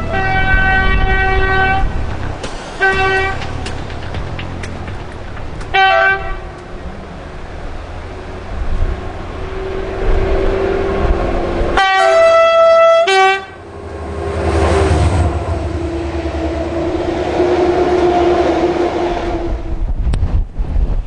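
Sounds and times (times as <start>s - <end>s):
locomotive horn blast: 0.0s - 4.7s, 5.6s - 6.7s, 9.4s - 19.8s
diesel locomotive engines droning: 0.0s - 20.7s.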